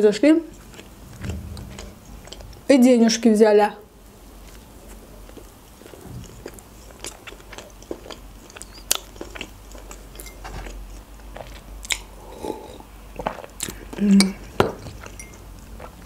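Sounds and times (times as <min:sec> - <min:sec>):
chewing with mouth clicks: 0:05.3 - 0:16.0.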